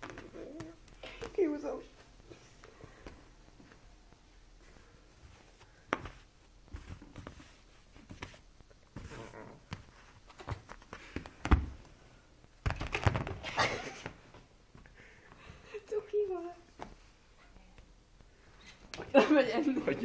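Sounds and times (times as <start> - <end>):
fabric rustling and scrabbling: 0.0 - 11.8.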